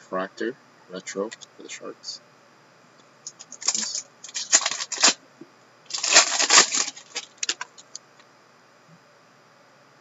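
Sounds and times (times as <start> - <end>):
wrapper crinkling: 3.4 - 5.2, 5.9 - 7.8.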